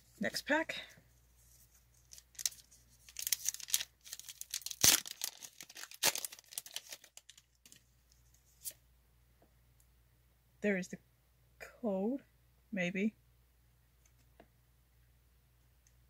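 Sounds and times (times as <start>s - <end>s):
foil wrapper tearing and crinkling: 2.0s - 7.8s
sharp foil cracks: 2.3s - 7.5s.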